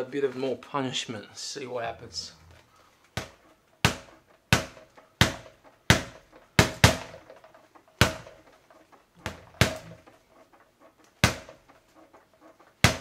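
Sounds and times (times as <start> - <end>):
ball and spring rebounding: 1.8 - 13.0
gloves punching speed ball: 3.1 - 10.2, 11.0 - 13.0.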